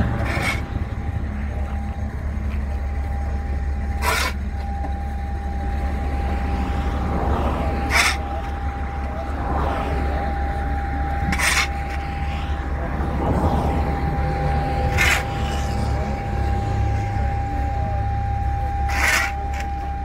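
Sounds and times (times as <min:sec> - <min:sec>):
shovel scraping ground: 0:00.0 - 0:00.8, 0:04.0 - 0:04.4, 0:07.8 - 0:08.6, 0:11.2 - 0:12.2, 0:14.8 - 0:15.9, 0:18.9 - 0:19.7
faint whine: 0:00.0 - 0:20.0
low rumble: 0:00.0 - 0:20.0.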